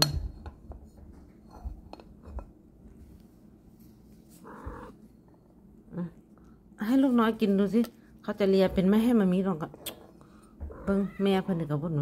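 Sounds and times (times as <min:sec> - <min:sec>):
kitten mewing: 0:04.4 - 0:05.0.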